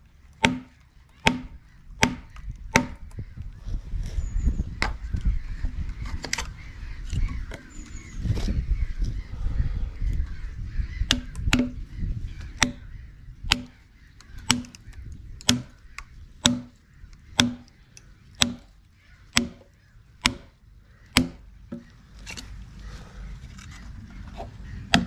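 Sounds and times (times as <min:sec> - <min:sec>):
hammer striking wooden wedges: 0:00.4 - 0:03.0, 0:11.1 - 0:11.8, 0:13.5 - 0:13.7, 0:14.5 - 0:14.8, 0:16.4 - 0:16.8, 0:17.4 - 0:17.7, 0:18.4 - 0:18.7, 0:19.3 - 0:20.5, 0:21.1 - 0:21.9.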